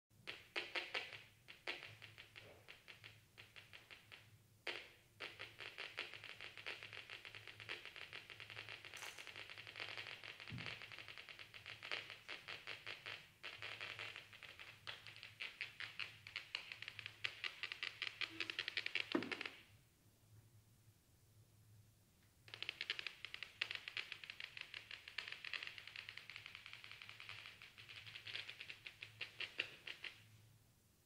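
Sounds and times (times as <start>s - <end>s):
rapid dry clicks: 22.5s - 30.3s.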